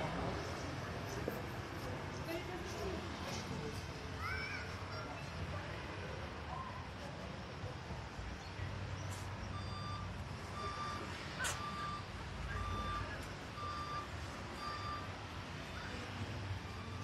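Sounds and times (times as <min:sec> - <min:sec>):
reversing alarm beeping: 0:09.5 - 0:15.2, 0:15.9 - 0:17.0.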